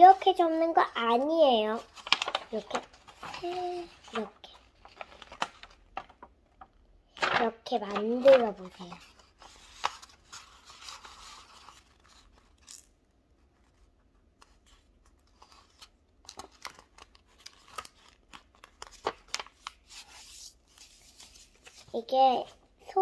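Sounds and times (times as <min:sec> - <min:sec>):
paper rustling and folding: 0:00.0 - 0:23.0.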